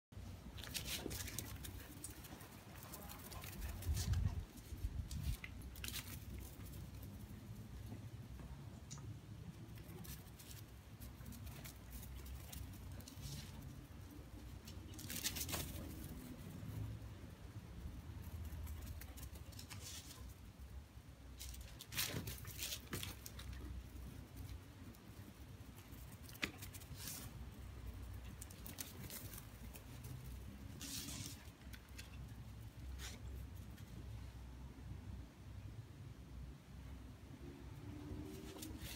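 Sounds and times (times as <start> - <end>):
animals scampering over dry grass: 0.5 - 8.3, 9.5 - 17.0, 18.2 - 20.6, 21.3 - 33.9
rustling on dry leaves: 28.3 - 31.6
scuffle in leaves: 30.8 - 31.5.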